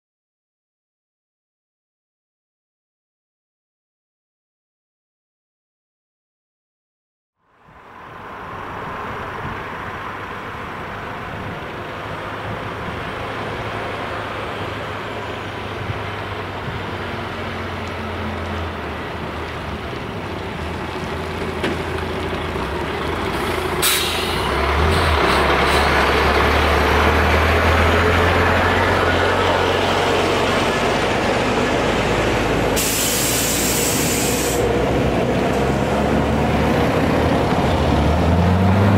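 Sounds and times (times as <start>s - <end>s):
lorry diesel engine: 7.4s - 38.9s
air-brake hiss: 23.4s - 25.9s, 32.8s - 34.7s.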